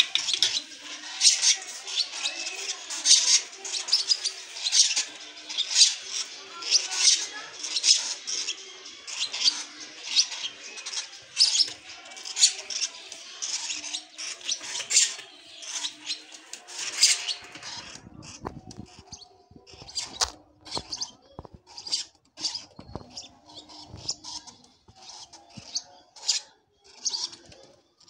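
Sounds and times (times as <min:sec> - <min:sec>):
bird chicks cheeping: 0:00.0 - 0:28.0.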